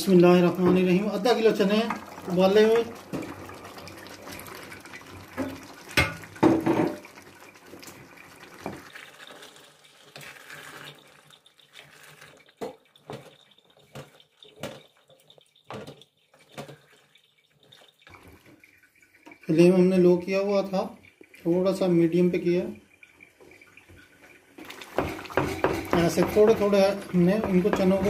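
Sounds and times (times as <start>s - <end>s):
wooden spoon scraping a metal pot: 24.7s - 28.0s.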